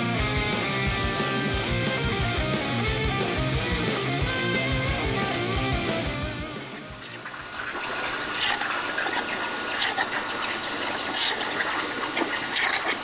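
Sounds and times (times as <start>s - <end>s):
plasma cutter hissing: 6.6s - 13.0s.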